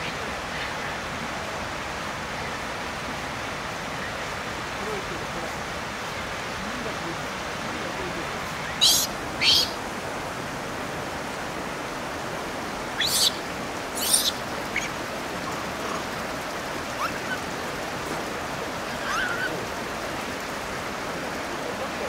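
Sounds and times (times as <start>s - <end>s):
flowing water rushing: 0.0s - 22.0s
monkey squeals and chirps: 8.7s - 9.8s, 13.0s - 15.0s, 16.9s - 17.5s, 18.9s - 19.6s.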